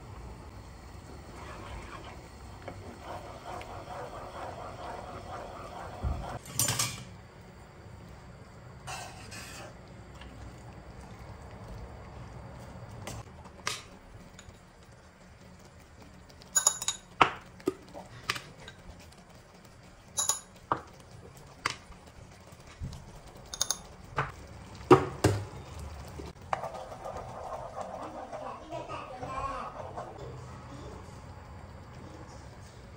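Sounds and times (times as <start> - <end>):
spatula scraping in pan: 1.1 - 6.4, 8.9 - 9.8, 26.3 - 30.2.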